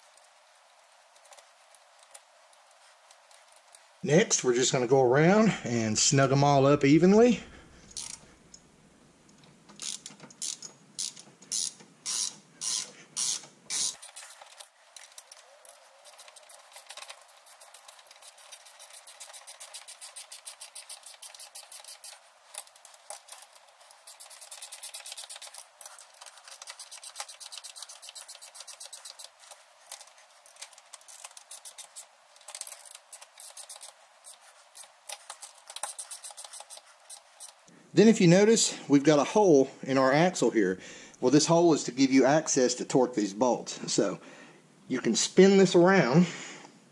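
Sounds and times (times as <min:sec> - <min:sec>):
ratcheting wrench clicking: 0:07.9 - 0:08.2, 0:09.7 - 0:37.6.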